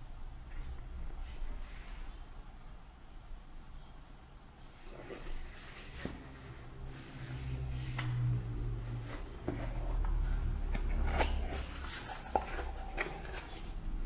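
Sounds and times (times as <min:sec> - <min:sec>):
steady low hum: 0:00.0 - 0:14.0
cardboard scraping and rubbing: 0:04.7 - 0:14.0.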